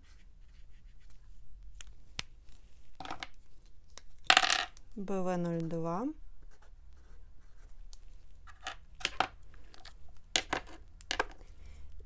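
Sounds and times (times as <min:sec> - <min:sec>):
marker scratching on paper: 0:00.0 - 0:01.3.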